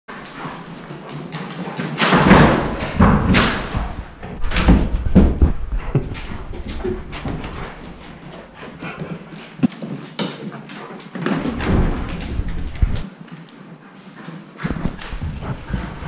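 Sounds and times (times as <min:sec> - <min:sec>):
camera bumping and rubbing: 0:03.3 - 0:08.2, 0:11.5 - 0:13.0, 0:14.6 - 0:16.0.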